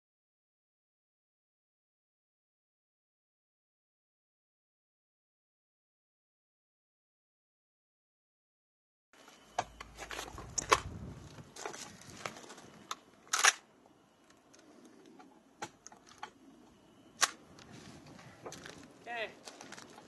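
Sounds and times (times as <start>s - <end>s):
rifle action clicking and clanking: 13.3s - 13.6s.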